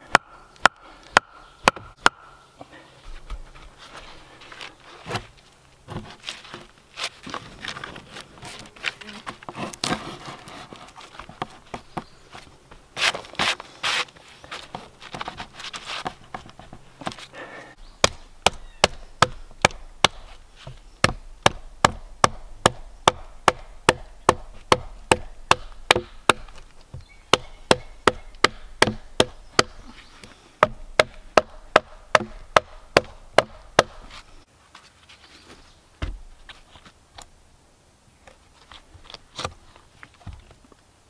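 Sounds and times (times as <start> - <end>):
axe chopping log: 0.1 - 2.3, 18.0 - 29.9, 30.6 - 34.1.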